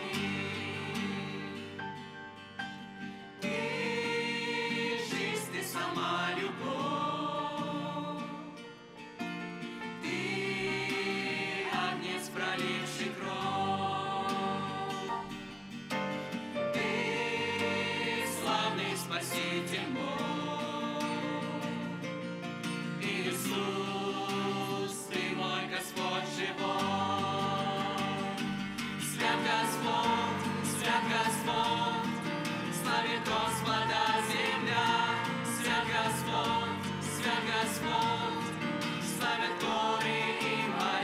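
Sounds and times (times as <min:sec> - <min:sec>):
choir singing a hymn: 0:00.0 - 0:09.0, 0:09.6 - 0:41.0.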